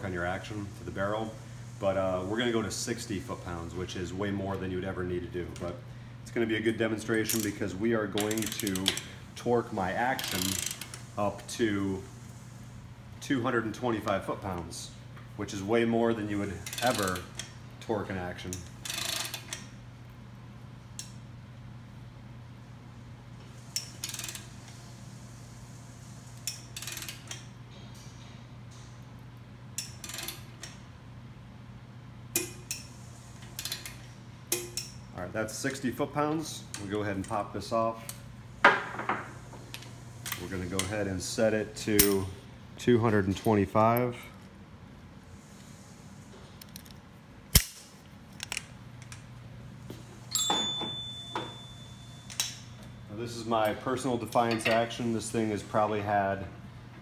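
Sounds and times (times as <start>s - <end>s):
torque wrench ratcheting: 8.2s - 9.1s, 10.1s - 11.1s, 16.6s - 17.5s, 18.6s - 19.7s, 23.8s - 24.5s, 26.4s - 27.4s
sharp metallic snap: 47.5s - 47.9s
faint metallic ring: 50.3s - 53.8s.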